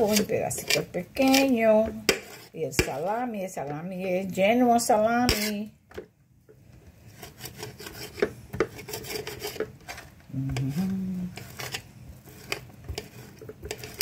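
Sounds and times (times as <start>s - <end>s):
knife chopping on a dish: 0.0s - 3.1s, 7.2s - 9.8s
person humming: 10.3s - 11.4s.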